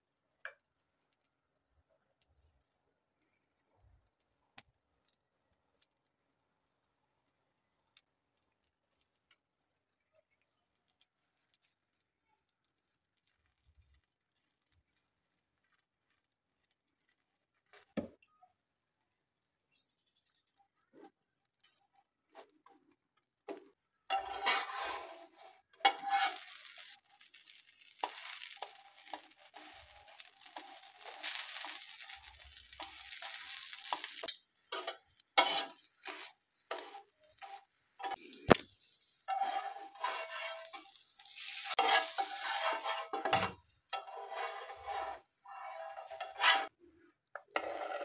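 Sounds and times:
oil sizzling in a pan: 23.5 - 46.7
metal tongs scraping a pan: 24.1 - 46.7.

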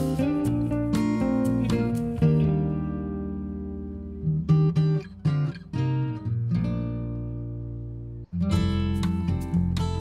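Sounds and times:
acoustic guitar chords: 0.0 - 10.0.

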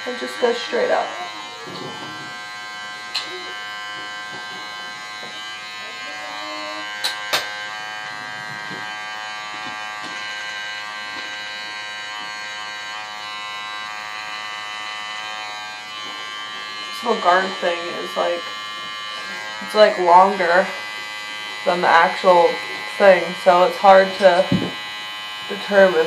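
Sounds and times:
electric hair clippers buzzing: 0.0 - 26.0.

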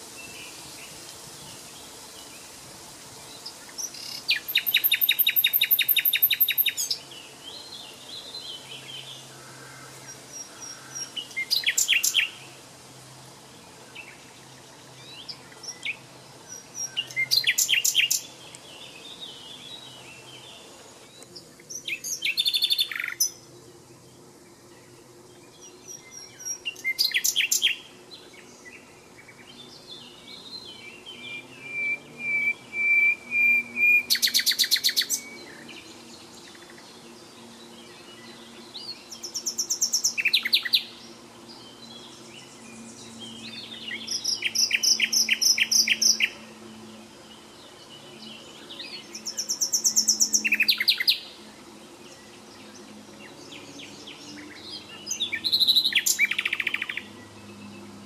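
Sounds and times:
songbird singing high notes: 30.8 - 35.6.

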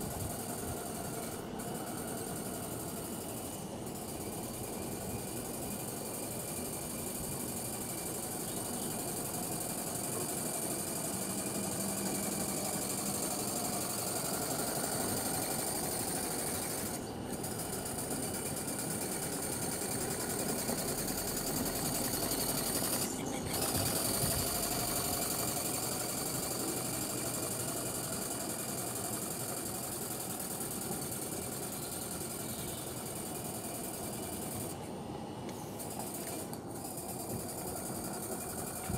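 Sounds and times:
steam engine exhaust beat: 0.0 - 38.9.

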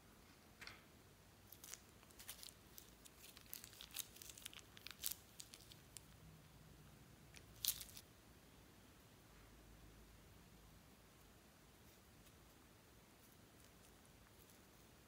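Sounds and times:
plastic bag crinkling: 1.5 - 6.1, 7.4 - 8.0.

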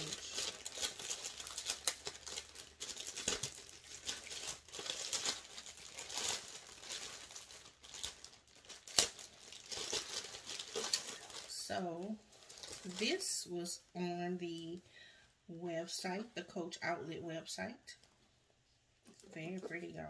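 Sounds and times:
plastic bag crinkling: 0.0 - 13.5.

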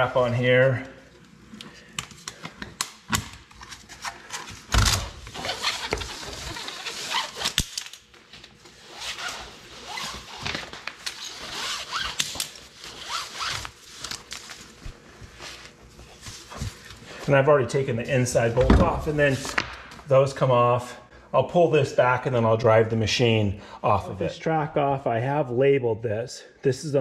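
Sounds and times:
nylon webbing rasping: 3.6 - 7.9, 8.7 - 16.8.

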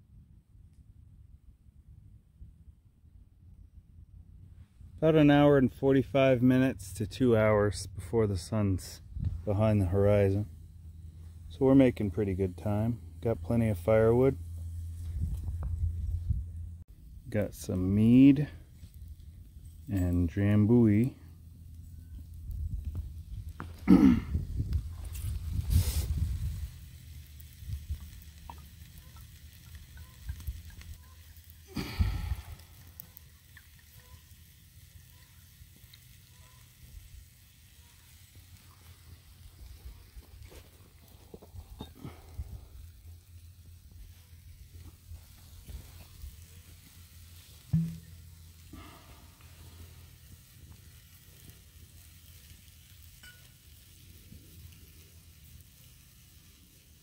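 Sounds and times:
steady low rumble: 0.0 - 28.9
food sizzling on campfire: 5.0 - 57.0
rustle: 12.8 - 57.0.

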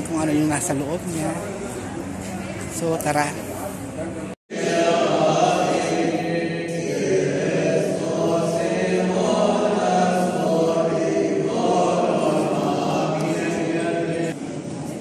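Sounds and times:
choir singing a hymn: 4.5 - 14.5.

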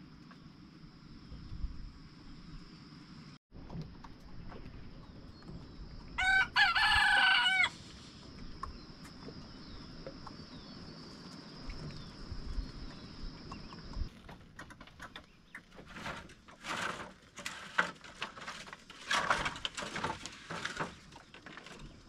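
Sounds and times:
rooster crowing: 6.2 - 7.8.

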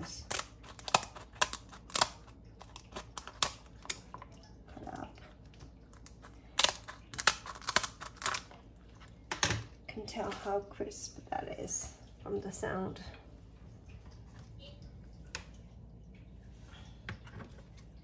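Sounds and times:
scissors snipping crisp crackling: 0.0 - 4.1, 6.0 - 8.5.

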